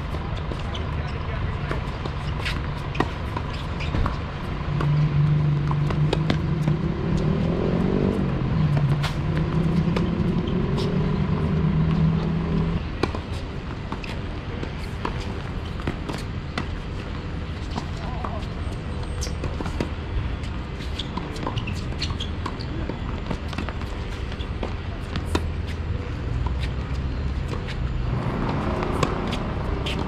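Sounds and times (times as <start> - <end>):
vehicle engine humming: 0.0 - 30.0
tennis balls struck by racquets: 19.2 - 30.0.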